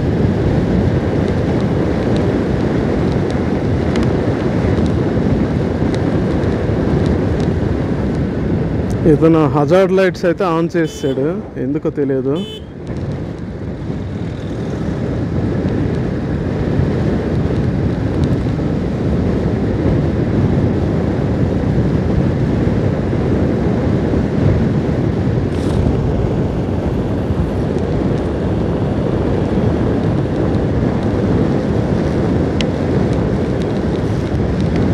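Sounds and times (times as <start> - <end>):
road noise: 0.0 - 34.9
wind rush over microphone: 0.0 - 34.9
motorcycle engine: 12.2 - 15.2.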